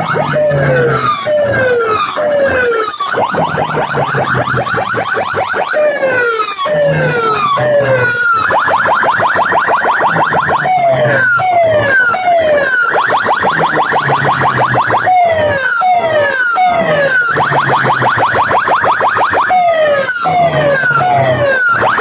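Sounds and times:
electronic siren chirps and swoops: 0.0s - 22.0s
low tone: 5.9s - 8.5s.

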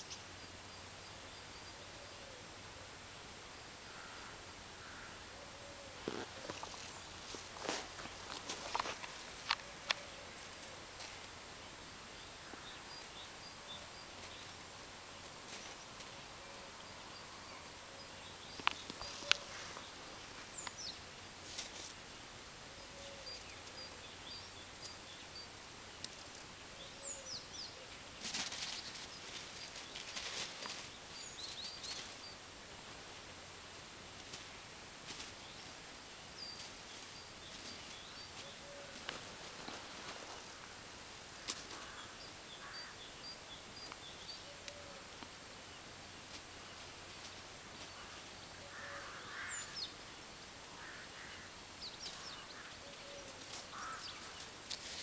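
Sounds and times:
small birds chirping: 0.0s - 2.8s, 3.5s - 22.0s, 22.6s - 33.4s, 34.1s - 55.0s
rustling crunching noise: 6.0s - 11.4s, 21.4s - 22.0s, 28.1s - 32.2s, 34.2s - 35.8s, 36.5s - 40.7s, 53.2s - 55.0s.

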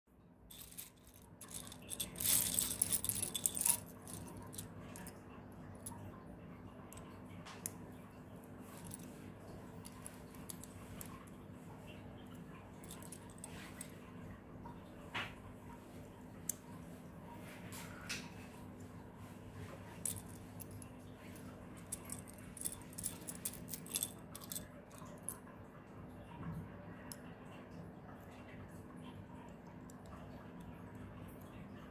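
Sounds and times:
faint steady hum: 0.1s - 31.9s
plastic bricks clattering: 0.5s - 5.1s.

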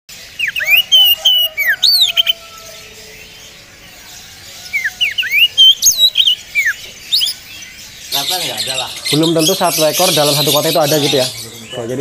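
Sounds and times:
bird singing whistled phrases: 0.4s - 3.1s, 4.7s - 7.4s.

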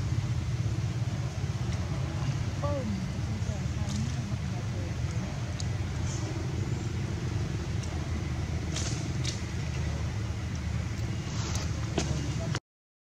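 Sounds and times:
low outdoor rumble: 0.0s - 12.6s.

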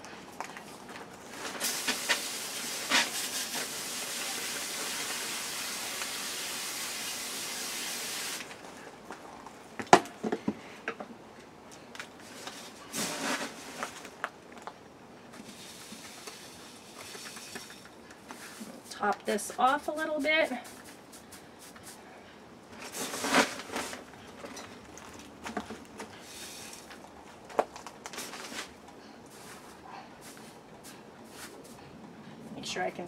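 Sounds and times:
hose nozzle spraying water: 1.5s - 8.5s.

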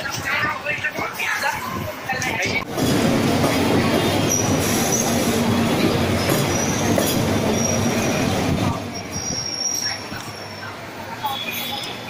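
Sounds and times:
train wheels rumbling over rails: 0.0s - 11.0s
high wheel squeal: 4.1s - 11.9s.

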